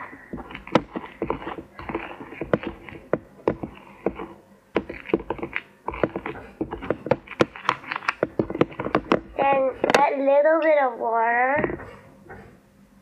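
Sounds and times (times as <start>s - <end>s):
spoon stirring flour in plastic bowl: 0.0s - 10.1s.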